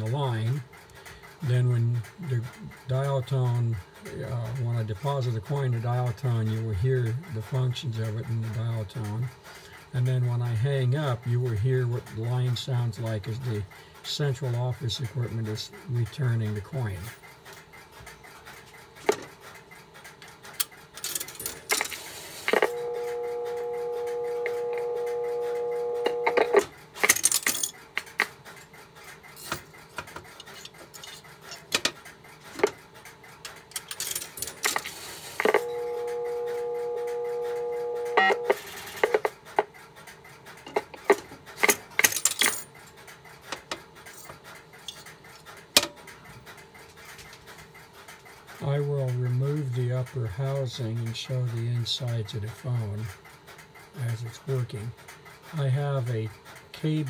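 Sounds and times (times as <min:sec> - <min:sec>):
clatter of payphone clicks: 0:00.0 - 0:57.0
coin rattling into payphone: 0:20.4 - 0:22.8, 0:26.0 - 0:28.6, 0:29.3 - 0:32.8, 0:33.5 - 0:35.7, 0:38.2 - 0:39.7, 0:40.6 - 0:46.5
dial tone: 0:22.5 - 0:26.7, 0:35.4 - 0:39.3.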